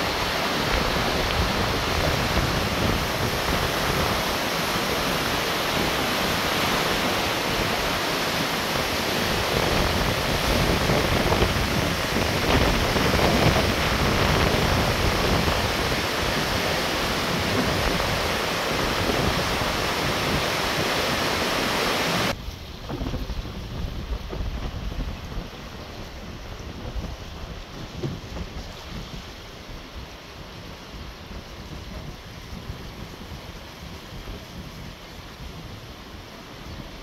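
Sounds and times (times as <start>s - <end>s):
river water rushing: 0.0s - 23.0s
wind buffeting microphone: 0.0s - 37.0s.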